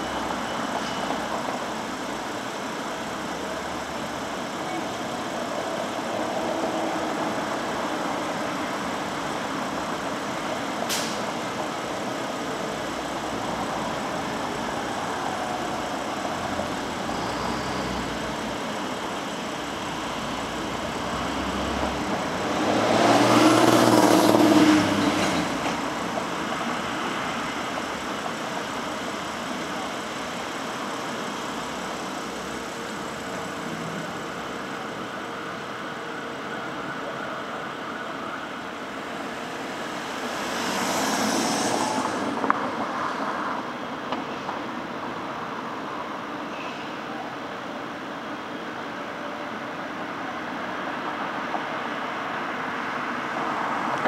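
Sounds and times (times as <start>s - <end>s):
street traffic hum: 0.0s - 54.0s
sharp click: 10.9s - 11.3s
loud vehicle passing: 19.9s - 28.0s, 39.7s - 43.3s.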